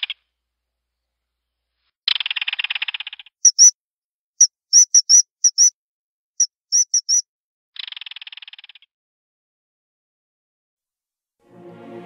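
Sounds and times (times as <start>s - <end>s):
animal rattling trill: 2.3s - 3.7s, 4.4s - 5.7s, 6.4s - 7.2s
shrill high whistles: 3.5s - 3.7s, 4.7s - 5.7s, 6.4s - 7.2s.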